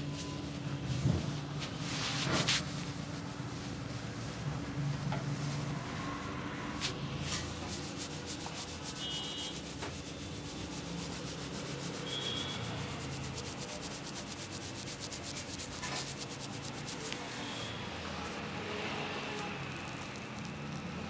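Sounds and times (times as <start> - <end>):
fingers scratching through hair: 6.8 - 17.7, 19.7 - 21.0.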